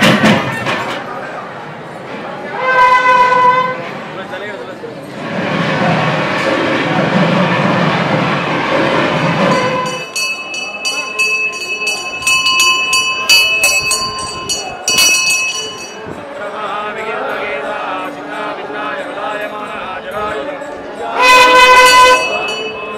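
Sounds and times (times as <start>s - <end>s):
crowd din: 0.0s - 22.9s
bell rung rapidly: 9.5s - 16.2s, 21.4s - 22.9s
voices chanting: 9.5s - 22.9s.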